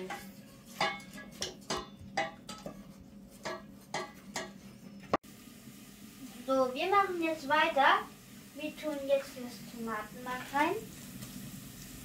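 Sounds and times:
wooden spoon knocking on metal pot: 0:00.0 - 0:04.6.

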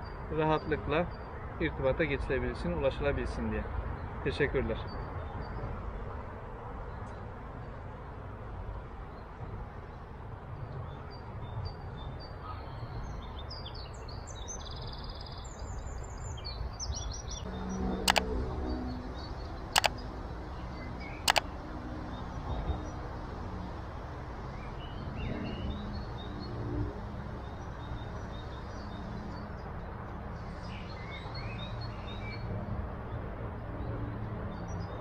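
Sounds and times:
songbirds chirping and trilling: 0:00.0 - 0:35.0
sharp double clicks: 0:18.1 - 0:18.3, 0:19.7 - 0:20.0, 0:21.2 - 0:21.5.

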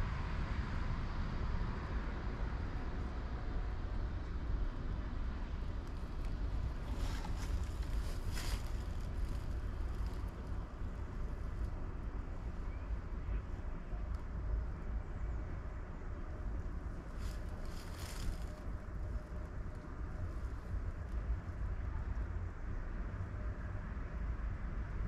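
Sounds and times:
distant road traffic rumble: 0:00.0 - 0:25.0
wind on microphone: 0:05.0 - 0:13.0
rustling: 0:06.6 - 0:10.6, 0:17.1 - 0:18.7.

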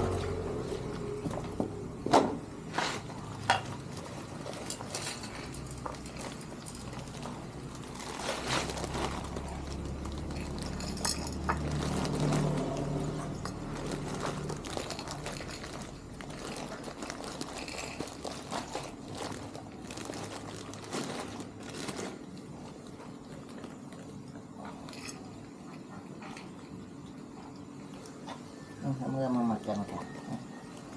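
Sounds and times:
plastic bag crinkling: 0:02.6 - 0:25.6
pellets clicking: 0:03.4 - 0:23.0.

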